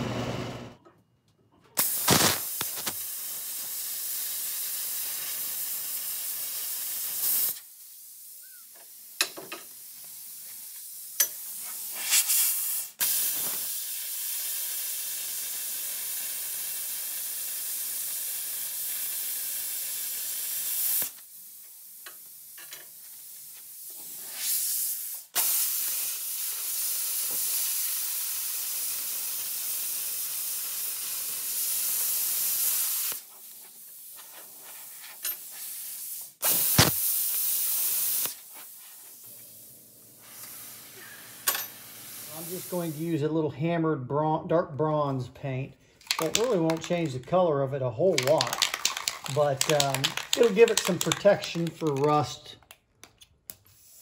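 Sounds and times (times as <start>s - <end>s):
plasma cutter hissing: 1.8s - 39.6s, 40.2s - 43.0s.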